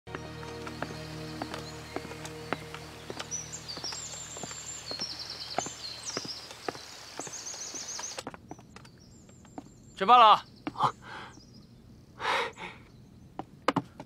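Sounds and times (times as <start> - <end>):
footsteps on wooden stairs: 0.1 - 9.8, 10.6 - 10.9, 13.4 - 14.0
birds chirping: 0.1 - 14.0.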